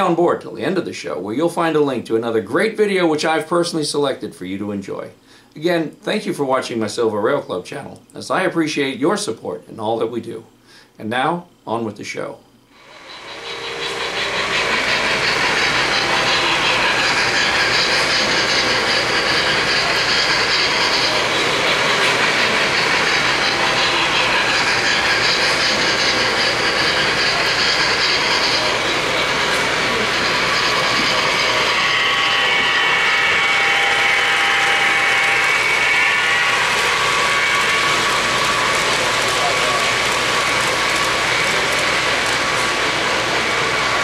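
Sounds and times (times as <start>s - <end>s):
model train wheels whirring: 12.7s - 44.0s.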